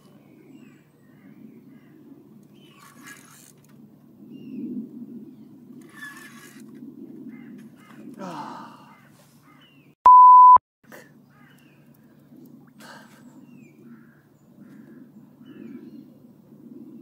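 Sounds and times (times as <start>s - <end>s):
faint outdoor background noise: 0.0s - 17.0s
censor bleep: 10.1s - 10.6s.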